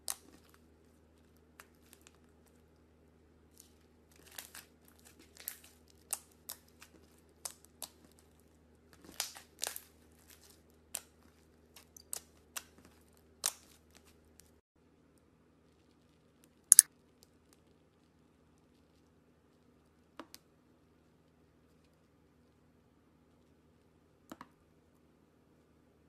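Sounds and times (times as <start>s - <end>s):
faint low hum: 0.0s - 26.0s
slime squished by hand: 3.5s - 14.5s, 16.7s - 16.9s.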